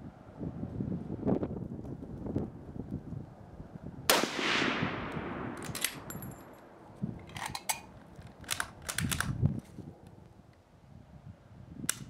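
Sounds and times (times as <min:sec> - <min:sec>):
rifle shot with echo: 0:04.1 - 0:06.8
rifle bolt clicks: 0:05.1 - 0:09.4.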